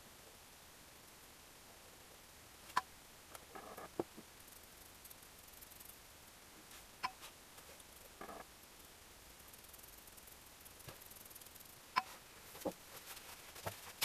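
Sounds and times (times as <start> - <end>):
short rustle: 12.0 - 14.0.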